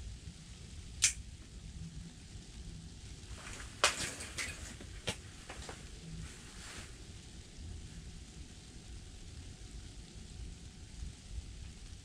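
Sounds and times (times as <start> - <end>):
steady low rumble and hiss: 0.0 - 12.0
sharp clicks: 1.0 - 1.2
rustles: 3.3 - 7.2.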